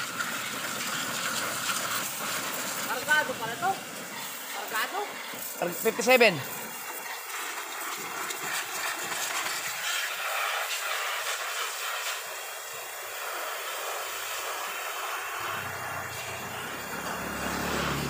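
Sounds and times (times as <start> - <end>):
pressure washer water jet spraying: 0.0 - 18.0
low engine hum: 15.4 - 18.0.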